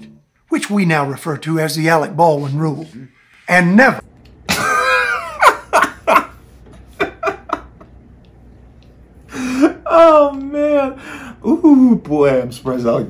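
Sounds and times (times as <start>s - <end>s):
man laughing hard: 4.5s - 7.8s, 9.3s - 11.0s.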